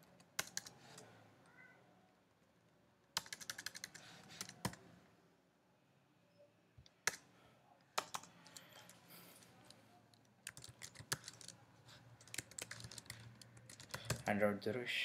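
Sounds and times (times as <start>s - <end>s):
typing on computer keyboard: 0.0s - 1.0s, 3.1s - 4.8s, 7.0s - 7.3s, 8.0s - 9.0s, 10.4s - 11.6s, 12.2s - 14.3s.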